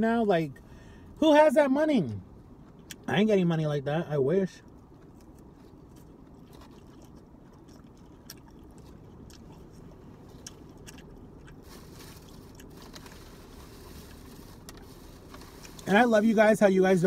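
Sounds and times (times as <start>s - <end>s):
steady low hum: 0.0s - 17.0s
people chewing crunchy salad: 4.8s - 15.9s.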